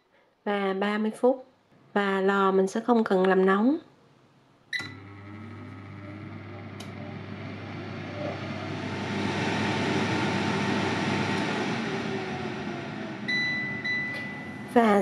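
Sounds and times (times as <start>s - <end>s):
air fryer fan whirring: 4.8s - 15.0s.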